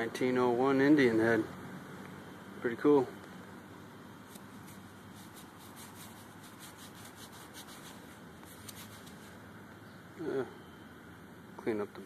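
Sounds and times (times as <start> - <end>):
steady low hiss: 0.0 - 12.0
fingers scratching dirt off coin: 4.3 - 9.3.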